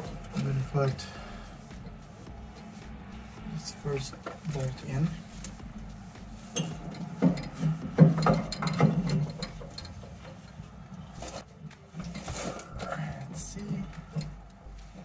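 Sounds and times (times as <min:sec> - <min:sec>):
metal parts knocking: 0:06.6 - 0:10.5.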